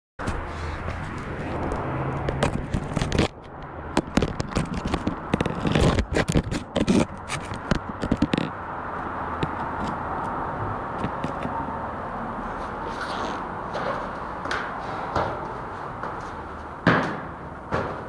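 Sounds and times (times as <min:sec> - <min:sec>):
camera handling scrapes and clicks: 0:04.0 - 0:08.5.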